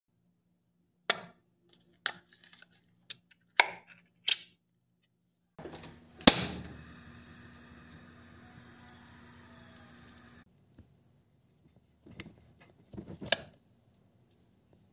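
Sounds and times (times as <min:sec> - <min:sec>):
gas burner hissing: 0:05.6 - 0:10.5.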